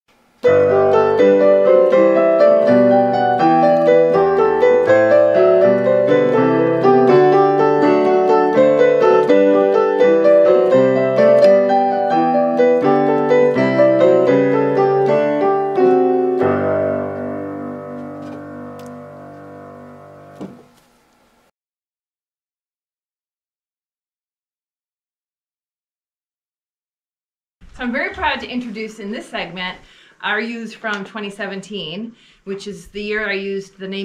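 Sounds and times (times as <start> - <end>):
solo piano music: 0.4 - 20.8.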